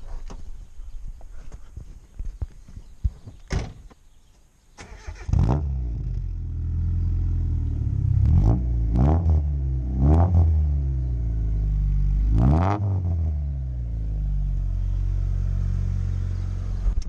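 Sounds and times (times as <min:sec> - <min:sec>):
car engine idling: 0:13.7 - 0:17.0.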